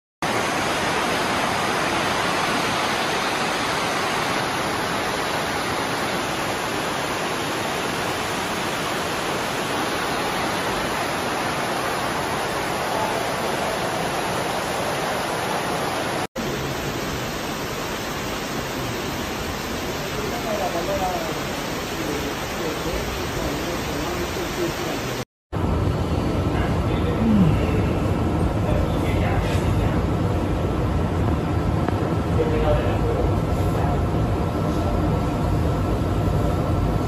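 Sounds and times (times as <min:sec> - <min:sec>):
floodwater rushing and churning: 0:00.2 - 0:25.2.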